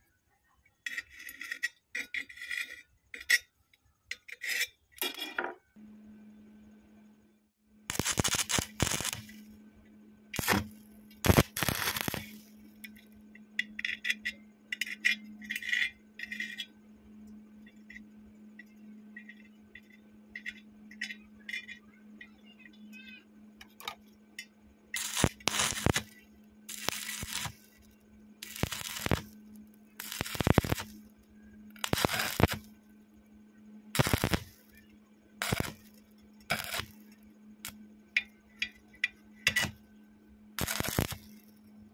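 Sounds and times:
steady low hum: 4.1s - 41.9s
welding arc crackling: 7.9s - 9.6s, 10.3s - 13.0s, 25.0s - 32.8s, 33.9s - 34.8s, 35.4s - 37.8s, 39.5s - 39.8s, 40.6s - 41.6s.

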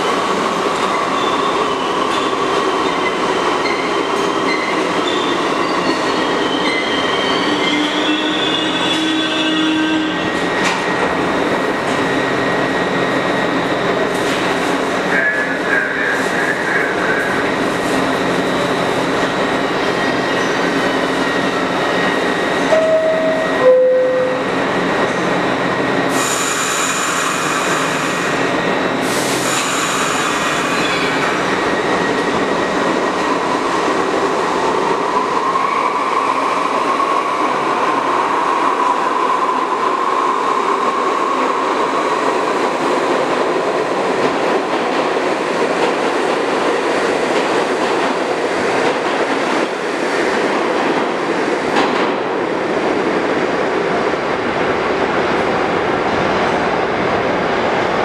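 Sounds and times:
two-tone door chime: 22.7s - 24.4s.

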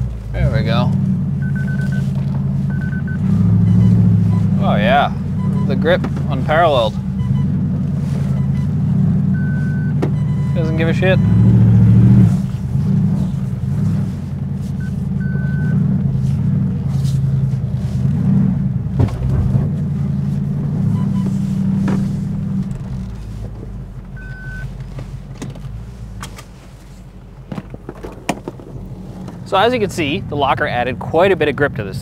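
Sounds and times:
suv engine pulling at low speed: 0.0s - 32.0s
rocks crunching under tyres: 9.4s - 29.5s.

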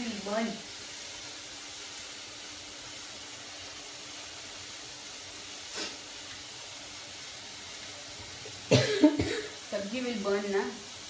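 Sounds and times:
food frying in oil: 0.0s - 11.0s.

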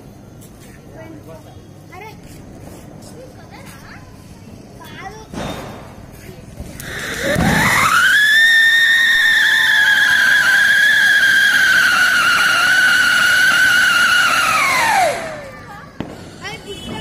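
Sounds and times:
firework burning hiss: 2.0s - 17.0s
firework shrill whistle: 6.7s - 17.0s.

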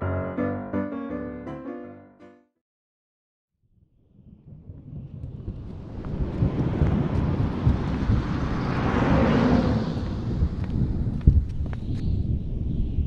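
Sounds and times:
low rumbling rush: 3.8s - 13.0s.

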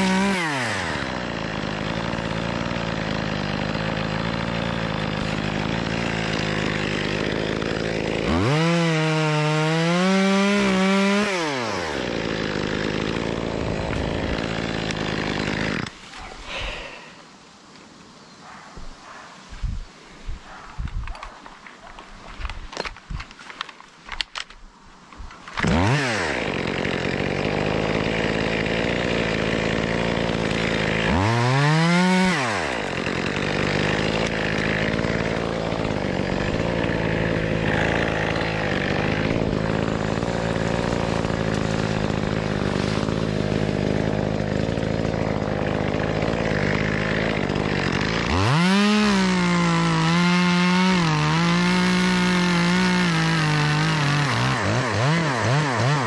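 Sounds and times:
chainsaw running and revving: 0.0s - 17.0s, 25.5s - 56.0s.

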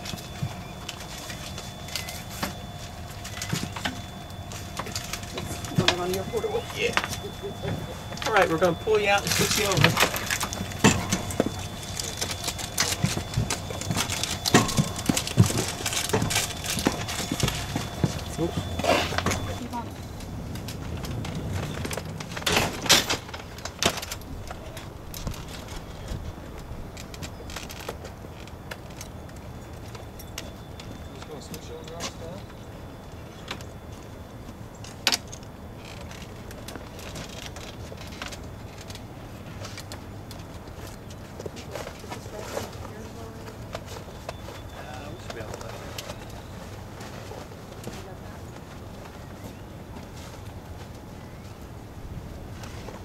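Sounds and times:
steady low rumble: 0.0s - 30.0s
medical gear clicking and rattling: 0.0s - 51.6s.

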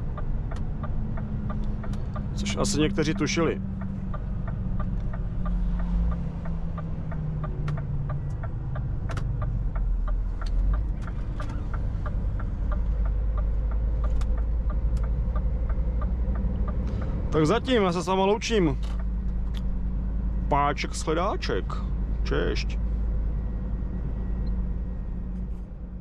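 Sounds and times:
light regular ticking: 0.0s - 20.2s
diesel truck engine at low revs: 0.0s - 26.0s.

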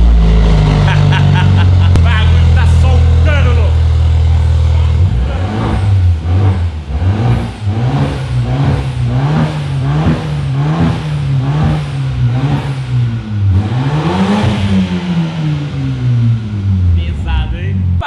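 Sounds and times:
heavy bass music in a car: 0.0s - 12.7s.

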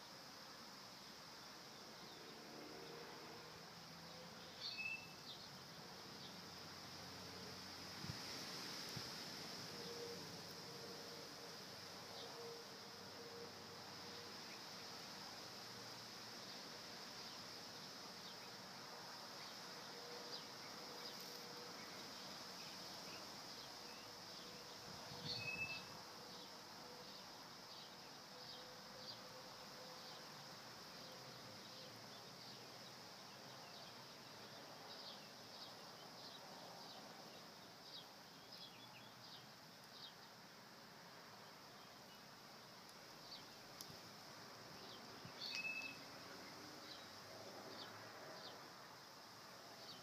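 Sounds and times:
short insect chirps: 4.1s - 5.5s, 19.4s - 34.2s, 41.5s - 48.5s.

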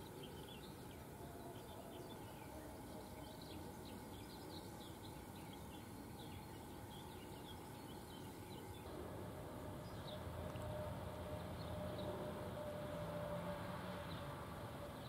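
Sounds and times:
goldfinches twittering: 0.0s - 8.9s
steady low background noise: 0.0s - 15.0s.

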